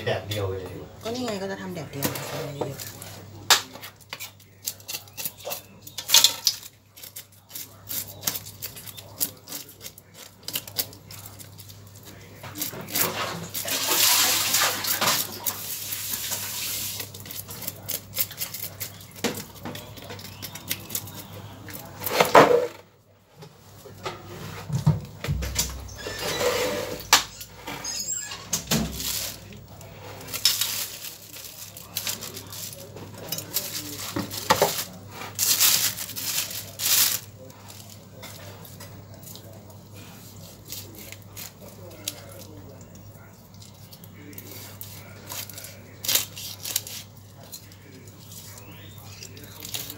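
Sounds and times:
fish rustling and scraping on wood: 1.1 - 25.0, 25.8 - 49.9
knife scraping fish scales: 4.1 - 11.6.

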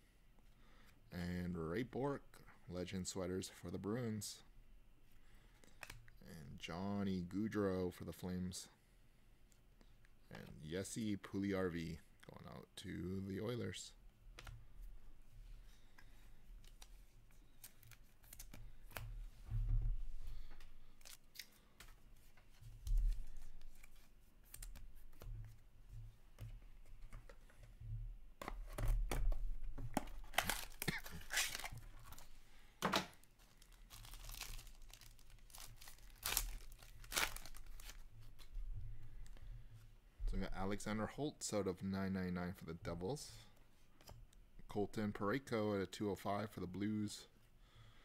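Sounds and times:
foil pack tearing and crinkling: 30.2 - 32.2, 33.6 - 38.0.

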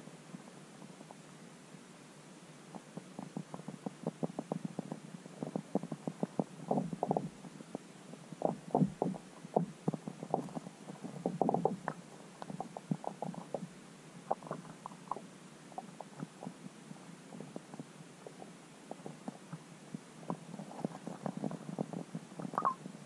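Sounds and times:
faint steady hiss: 0.0 - 23.0
muffled underwater knocks and pops: 20.3 - 22.8.

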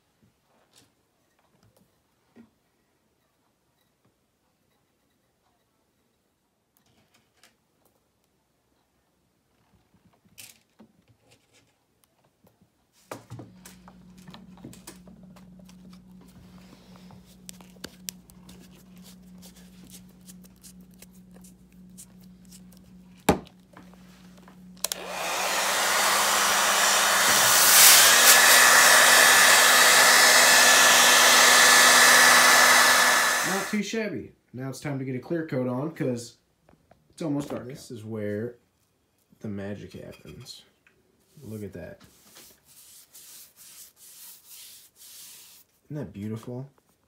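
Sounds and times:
faint hum: 13.3 - 25.6
hair dryer blowing with whine: 22.0 - 33.9.

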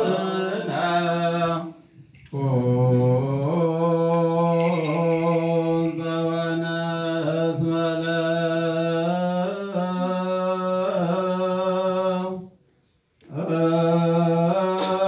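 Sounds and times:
men chanting: 0.0 - 12.0.

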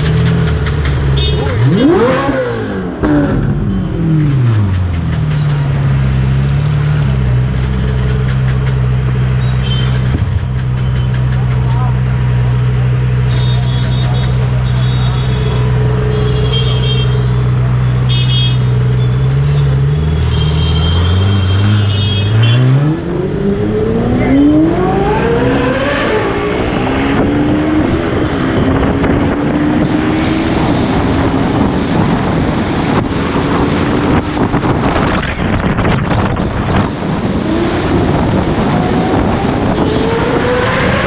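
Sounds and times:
engine revving up: 0.0 - 3.4, 19.9 - 31.4, 37.3 - 41.0
engines idling in traffic: 0.0 - 22.6
car horn beeps: 1.2 - 2.0, 9.4 - 10.1, 13.3 - 17.4, 18.0 - 22.8
wind rushing over camera: 23.0 - 41.0.

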